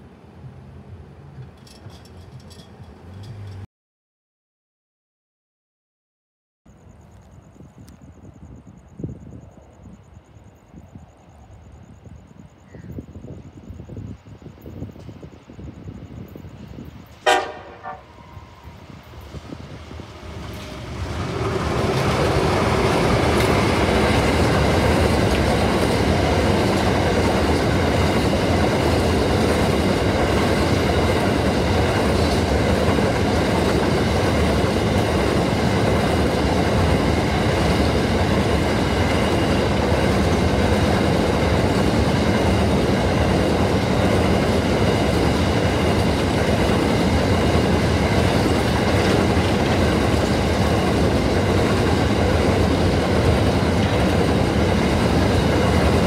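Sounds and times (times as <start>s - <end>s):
wagon wheels rumbling on rail: 0.0s - 3.6s, 13.6s - 56.0s
train locomotives passing: 13.5s - 56.0s.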